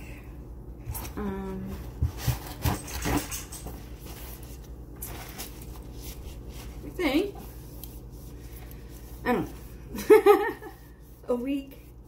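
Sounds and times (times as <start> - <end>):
paper towel rustling: 3.8 - 12.0.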